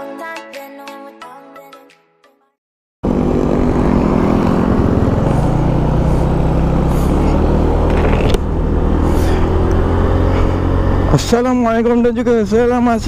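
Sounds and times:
scooter engine running: 3.0s - 11.9s
wind and road noise: 3.0s - 13.0s.

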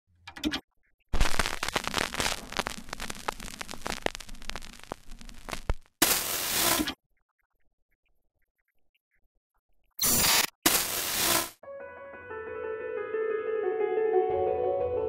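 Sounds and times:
television static: 1.1s - 7.0s, 10.0s - 11.6s
old film crackle: 1.2s - 6.9s.

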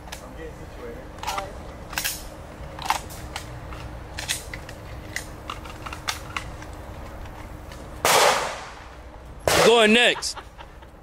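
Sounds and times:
sharp cracks and clicks: 1.2s - 7.4s.

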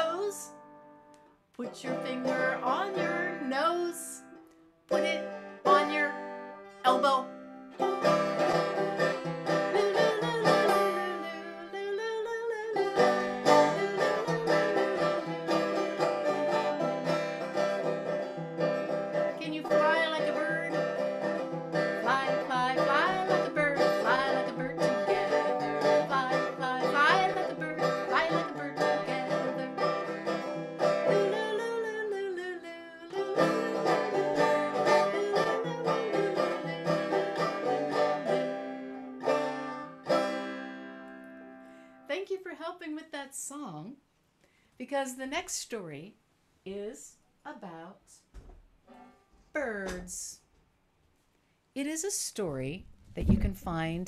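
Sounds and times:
plucked string instrument tune: 0.0s - 42.0s.

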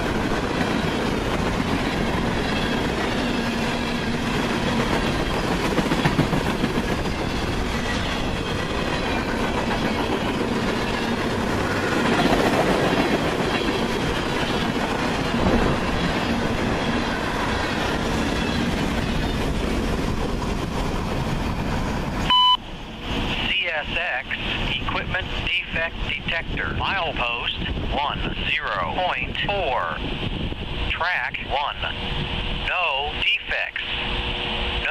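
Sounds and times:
clickety-clack over rail joints: 0.0s - 22.2s
train wheels rumbling on rail: 0.0s - 34.9s.

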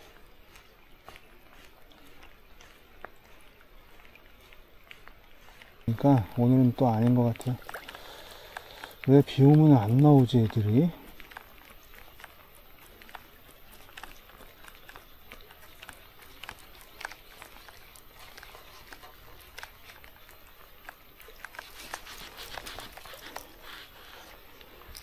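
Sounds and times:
raindrops ticking on rain jacket: 0.0s - 25.0s
faint hiss of rain: 5.8s - 13.0s.

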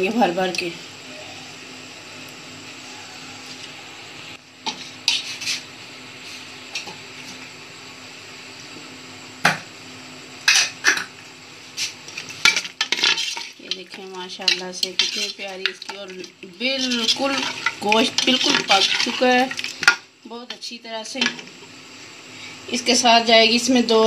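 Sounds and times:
spoon scraping metal pot: 12.4s - 20.0s.

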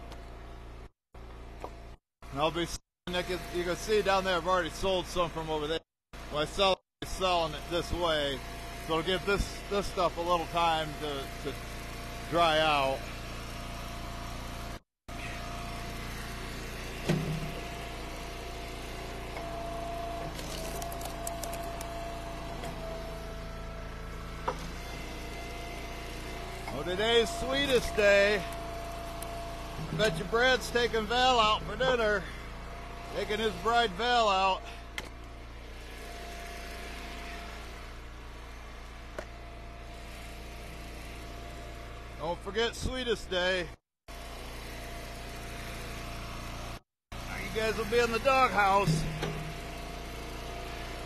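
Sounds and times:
log splitter engine running: 0.0s - 51.0s
high steady machine tone: 2.3s - 38.8s, 44.1s - 51.0s
wood cracking as log splits: 20.3s - 22.0s.

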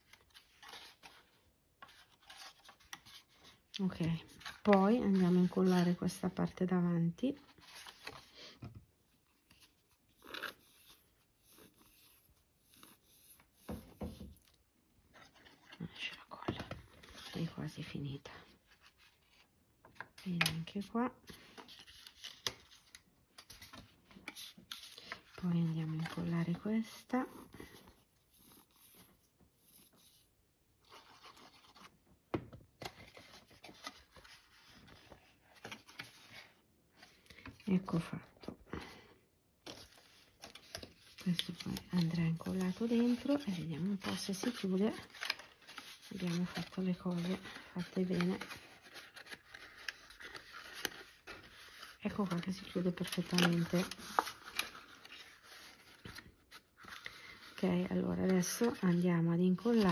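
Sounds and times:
cardstock rustle: 18.7s - 32.0s, 32.7s - 39.0s, 39.6s - 59.9s.

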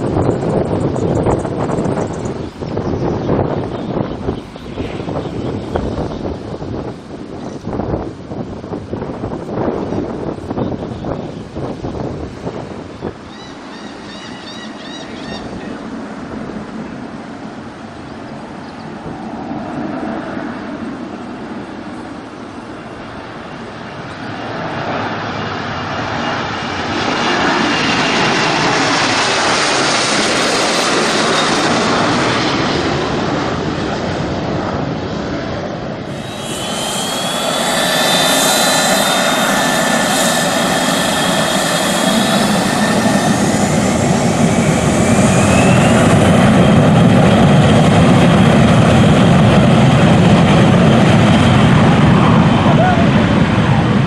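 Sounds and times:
jet engines roaring: 0.0s - 54.0s
engine whines rising: 36.0s - 52.6s.

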